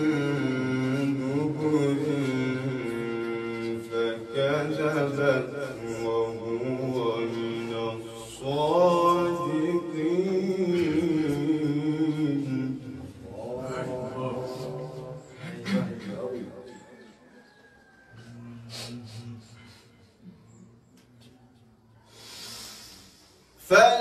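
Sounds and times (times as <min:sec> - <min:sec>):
man chanting recitation: 0:00.0 - 0:17.4, 0:18.1 - 0:21.5, 0:23.5 - 0:24.0.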